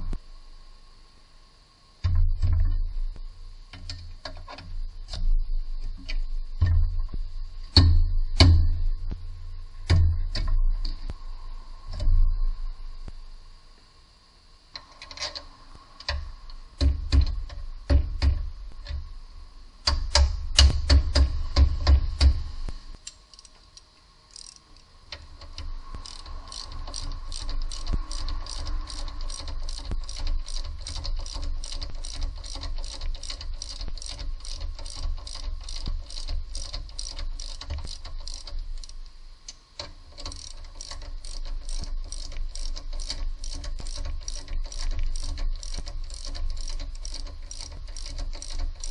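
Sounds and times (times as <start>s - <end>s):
ratchet wrench clicking: 23.0s - 48.9s.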